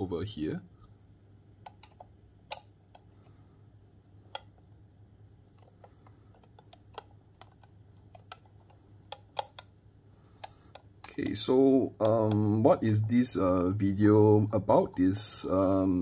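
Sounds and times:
screwdriver clicks on metal: 9.1 - 9.7.

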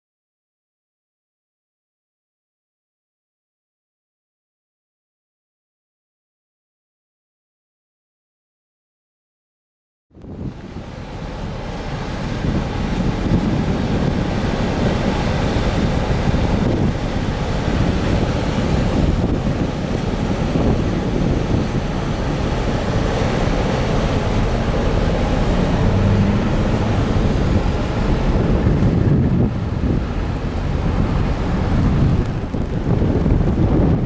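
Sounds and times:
low rumble of ferry: 10.1 - 34.0
water washing along hull: 10.2 - 34.0
wind buffeting microphone: 10.2 - 34.0.

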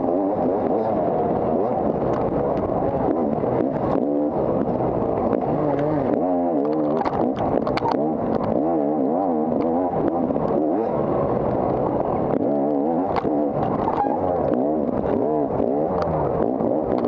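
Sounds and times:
knocks and clatter: 3.5 - 8.7, 12.3 - 15.2.

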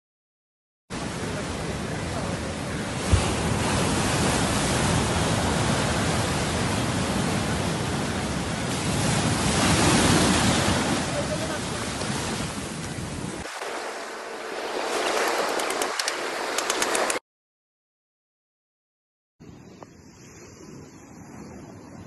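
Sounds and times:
waves breaking on shore: 0.9 - 17.2
wind buffeting microphone: 1.1 - 13.5.

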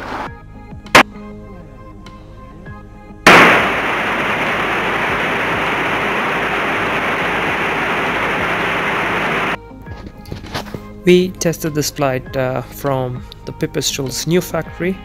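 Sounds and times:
airflow rushing: 3.3 - 9.6.

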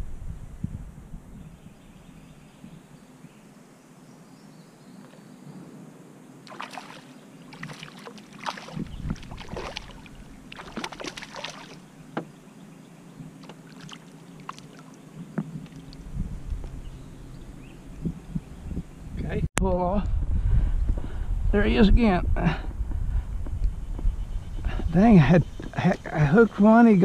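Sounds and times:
fish splashing at water surface: 6.5 - 11.8, 13.4 - 15.0.

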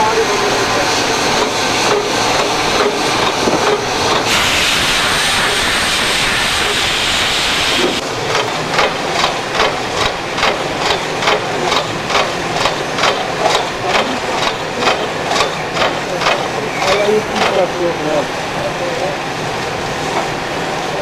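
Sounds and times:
steam hissing: 0.0 - 21.0
steam locomotive chuffing: 0.0 - 21.0
steam hissing from drain cocks: 0.2 - 18.2.

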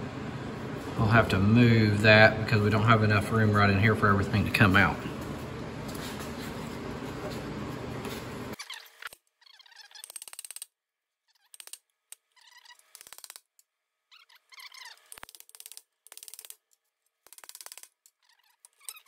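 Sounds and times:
metallic clicking and squeaking: 8.6 - 10.6, 11.3 - 13.4, 14.1 - 16.6, 17.3 - 19.0.

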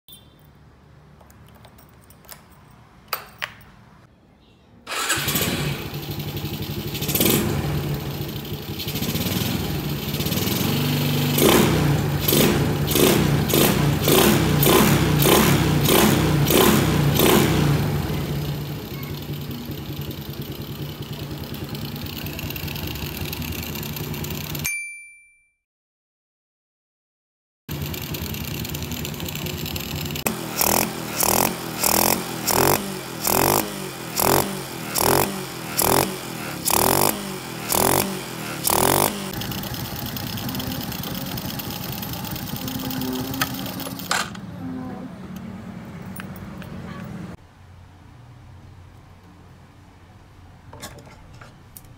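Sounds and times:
small motorcycle engine revving: 4.9 - 24.6, 27.7 - 44.8.

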